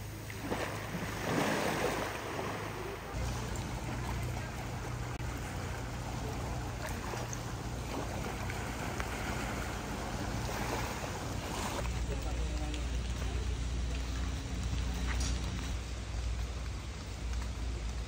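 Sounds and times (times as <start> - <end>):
engine running: 0.0 - 18.0.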